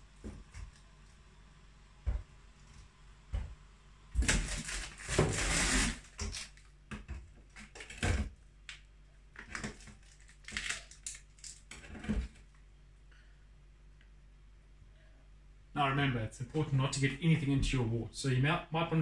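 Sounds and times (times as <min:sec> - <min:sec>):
ice packs crinkling and crunching: 0:04.2 - 0:06.7, 0:09.5 - 0:12.4.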